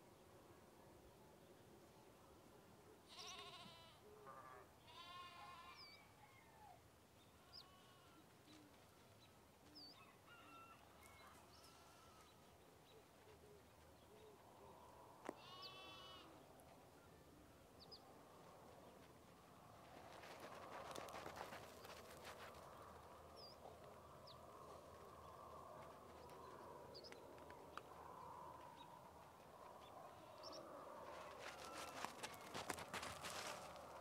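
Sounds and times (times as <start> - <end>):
faint goat bleats: 3.0 - 6.0, 7.4 - 8.3, 11.4 - 12.4, 15.2 - 16.4, 30.1 - 30.6.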